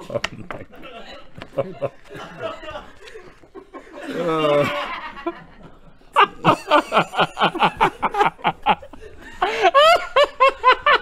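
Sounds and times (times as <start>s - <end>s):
man laughing hard: 3.9s - 5.3s, 6.2s - 11.0s.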